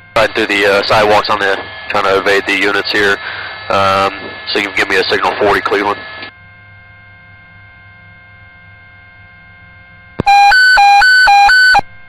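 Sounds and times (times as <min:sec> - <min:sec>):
radio hiss and hum: 0:00.0 - 0:06.6
radio alert tone beeps: 0:10.2 - 0:11.8.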